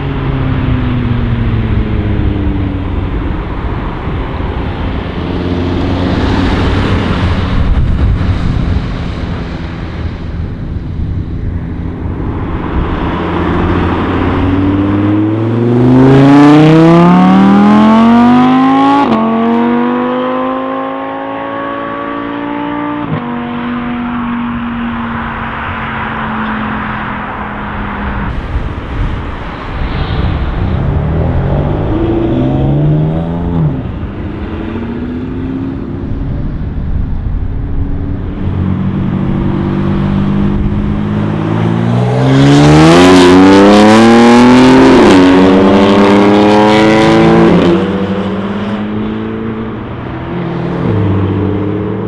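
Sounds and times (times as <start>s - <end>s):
car engine revving and upshifting: 12.2s - 28.4s, 38.3s - 52.0s.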